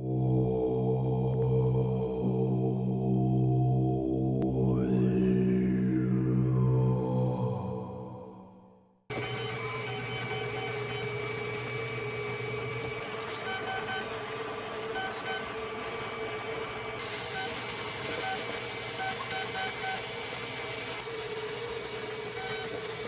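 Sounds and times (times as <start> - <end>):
cooling fans humming: 9.1 - 23.0
printer motors whining: 9.1 - 23.0.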